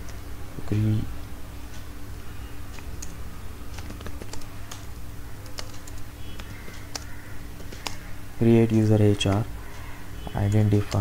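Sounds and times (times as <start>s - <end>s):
faint steady hum: 0.0s - 11.0s
keyboard typing: 2.7s - 8.1s, 8.7s - 9.5s, 10.2s - 11.0s.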